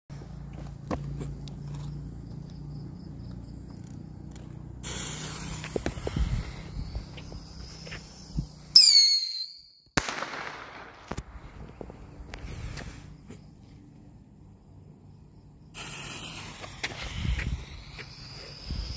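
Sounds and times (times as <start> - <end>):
firework whistle: 4.8 - 11.2, 15.8 - 18.9
firework hissing fizz: 4.8 - 11.5, 15.7 - 18.9
firework bang with crackling: 10.0 - 11.4.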